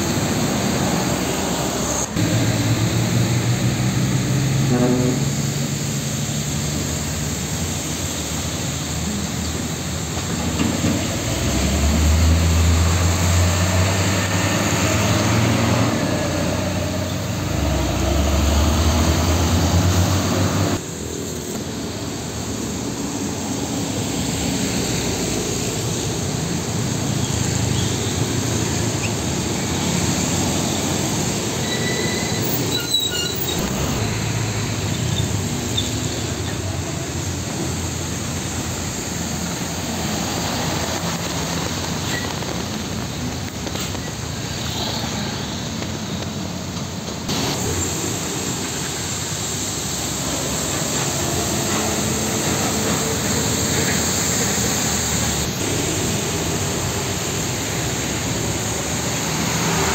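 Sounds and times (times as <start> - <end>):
diesel truck passing: 0.0 - 21.1, 22.2 - 59.9
traffic noise: 0.0 - 59.9
high squeal: 31.3 - 34.2.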